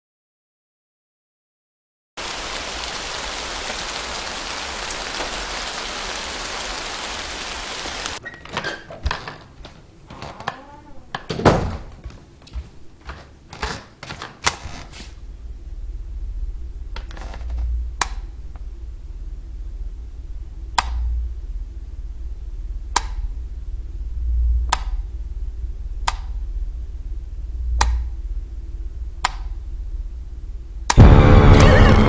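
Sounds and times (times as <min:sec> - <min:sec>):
steady hiss: 0:02.2 - 0:08.2
knocks and clicks: 0:24.7 - 0:25.0, 0:27.8 - 0:28.2
loud thump: 0:30.9 - 0:32.0.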